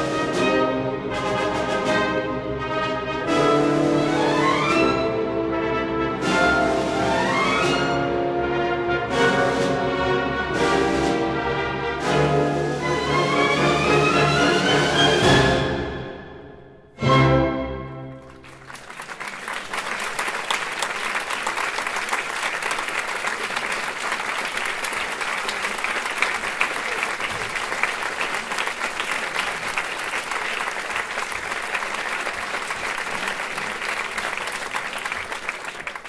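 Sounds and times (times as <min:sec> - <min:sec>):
audience applauding: 0:18.1 - 0:36.0.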